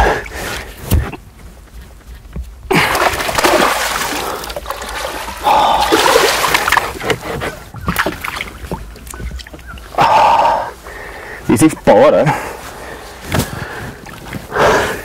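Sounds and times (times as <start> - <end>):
fish splashing in water: 2.8 - 9.7.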